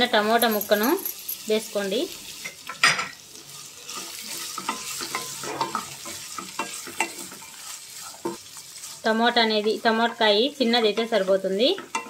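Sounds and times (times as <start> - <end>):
vegetables sizzling in hot oil: 0.0 - 12.0
wooden spatula scraping a pan: 3.6 - 10.0.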